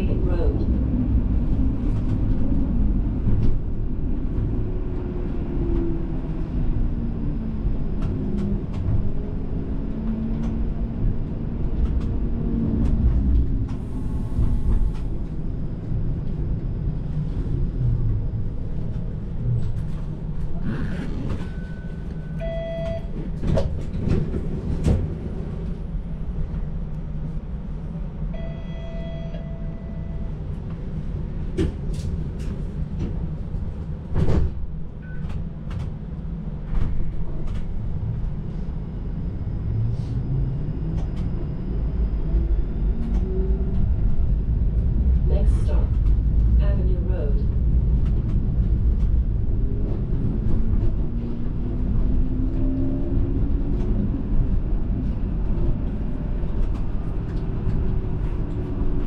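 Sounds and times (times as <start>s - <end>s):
streetcar wheels rumbling on rail: 0.0s - 59.0s
short steady tone: 28.3s - 30.3s.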